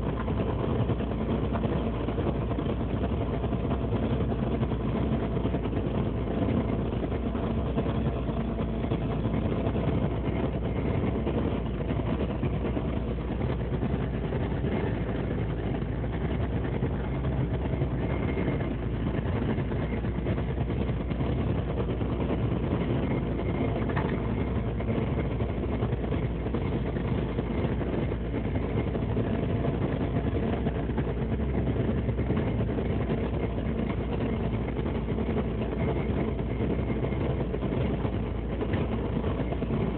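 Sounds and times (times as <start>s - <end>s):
boat engine humming: 0.0s - 39.9s.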